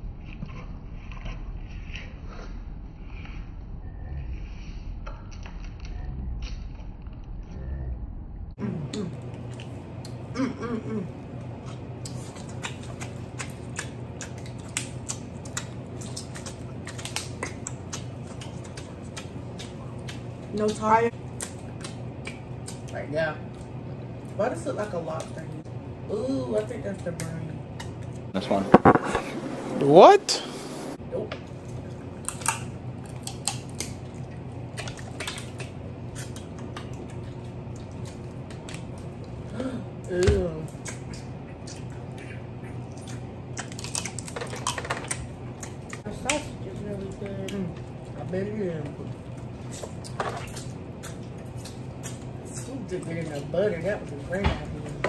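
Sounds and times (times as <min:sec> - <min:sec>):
steady low hum: 0:00.0 - 0:55.0
crab legs cracking: 0:11.4 - 0:23.8, 0:31.5 - 0:42.2, 0:42.8 - 0:48.1, 0:49.0 - 0:55.0.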